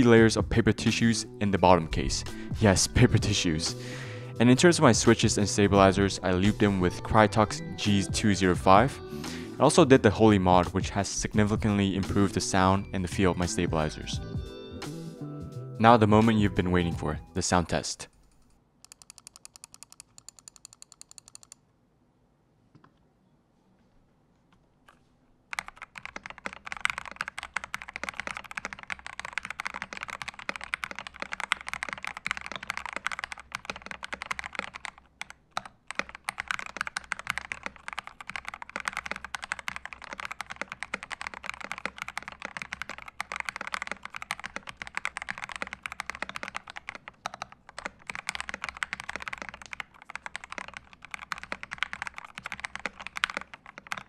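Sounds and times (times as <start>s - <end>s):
mechanical keyboard typing: 18.2s - 21.6s, 25.5s - 54.0s.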